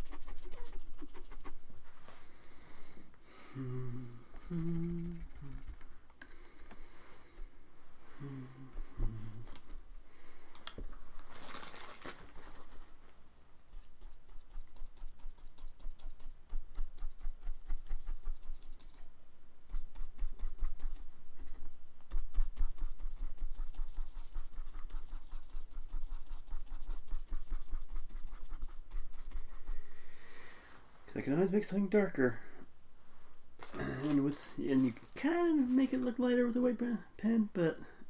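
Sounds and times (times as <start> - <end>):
paintbrush scratching on paper: 0.0 - 1.6, 4.8 - 6.0, 12.3 - 13.0, 13.7 - 19.1, 19.7 - 29.8.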